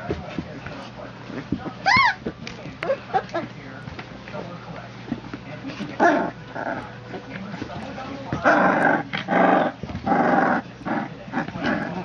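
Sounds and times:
puppies yelping: 1.8 - 2.3
puppies growling: 5.7 - 12.0.

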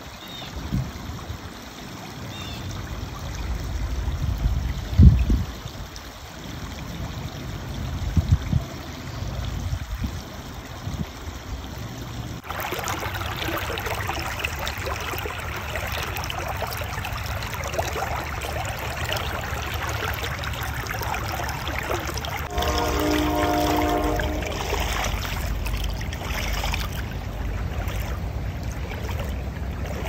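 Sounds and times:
water flowing over rocks: 0.0 - 30.0
low rumbling: 22.4 - 29.9.

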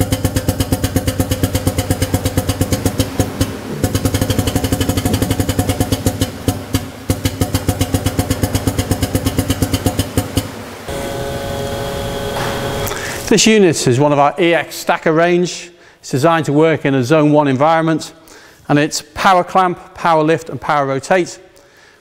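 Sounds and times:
pneumatic drive pulsing rapidly: 10.9 - 13.3.

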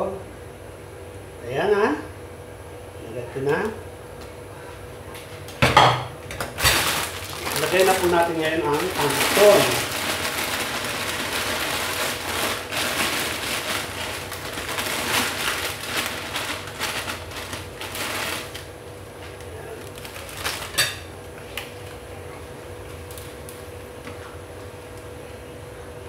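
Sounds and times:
plastic bag crinkling: 6.3 - 22.1, 22.9 - 23.8.

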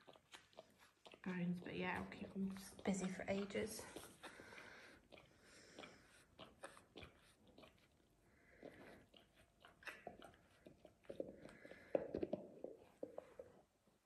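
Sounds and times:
dog gnawing on a bone: 0.0 - 13.7.

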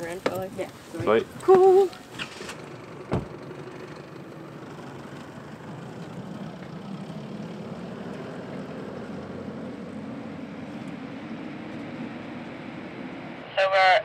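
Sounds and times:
pickup truck engine at low revs: 0.0 - 13.4
thump: 3.1 - 3.4.

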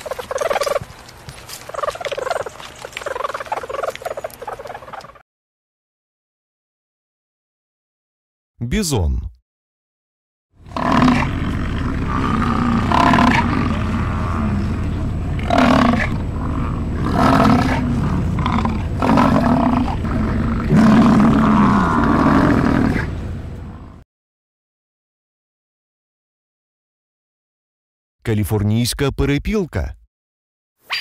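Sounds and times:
bison bellowing: 10.6 - 24.0
steady low rumble: 10.6 - 24.0.

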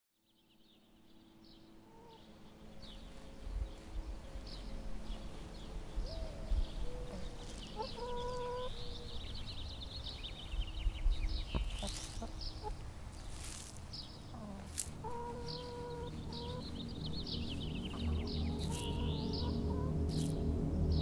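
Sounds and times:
small birds chirping: 0.2 - 21.0
chicken drawn-out call: 6.4 - 9.1, 14.3 - 16.7.

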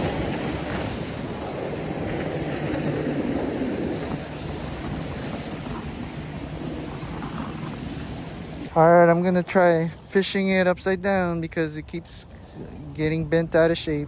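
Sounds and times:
waves washing against rocks: 0.0 - 9.8
jet skis engine drone: 0.0 - 14.0
wind on microphone: 0.0 - 14.0.

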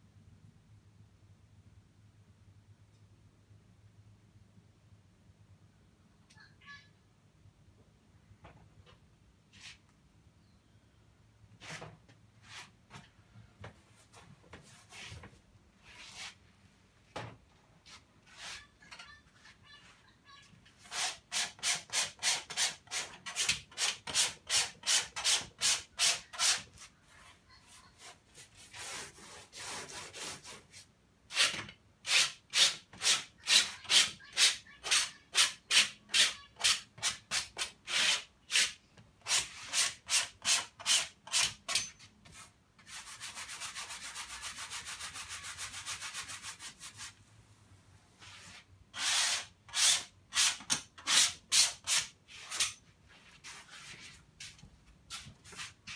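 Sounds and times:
paintbrush scrubbing on canvas: 26.8 - 30.9.

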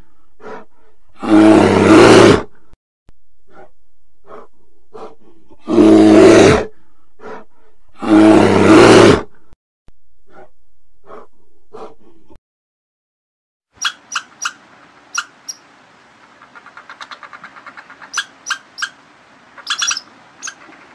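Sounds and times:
bear roaring: 0.4 - 2.5, 3.5 - 9.4.

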